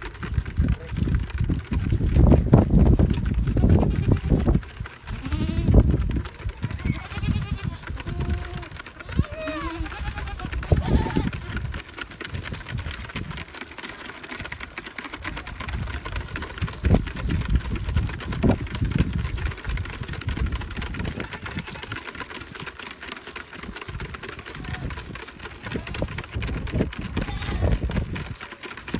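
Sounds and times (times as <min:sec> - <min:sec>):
goat kids sucking and slurping: 0:00.0 - 0:28.9.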